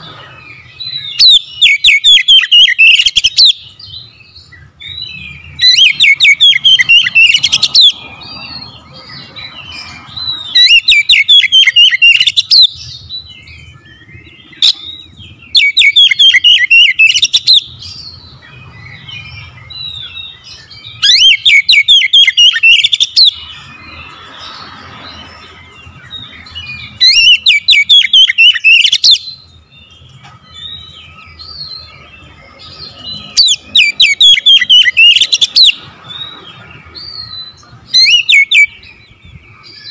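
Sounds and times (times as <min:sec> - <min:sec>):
songbird singing: 0:00.0 - 0:39.9.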